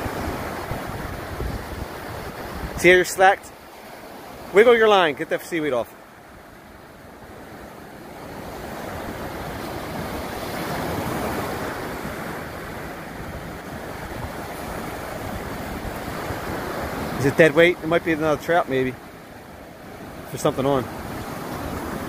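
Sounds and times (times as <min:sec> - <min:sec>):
wind on microphone: 0:00.0 - 0:02.9, 0:08.9 - 0:17.2
surf breaking on sand: 0:00.0 - 0:06.0, 0:07.3 - 0:22.0.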